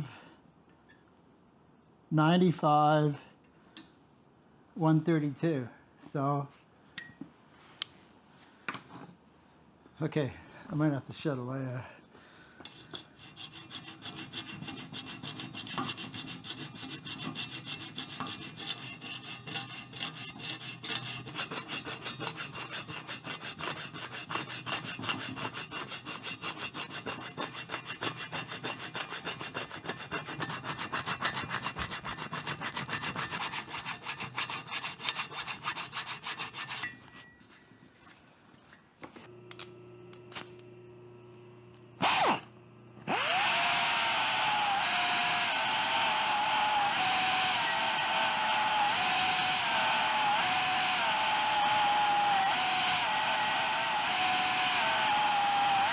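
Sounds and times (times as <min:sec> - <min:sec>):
hand file rasping on metal: 0:12.7 - 0:37.1, 0:43.2 - 0:55.9
air belt file burst: 0:42.0 - 0:55.9.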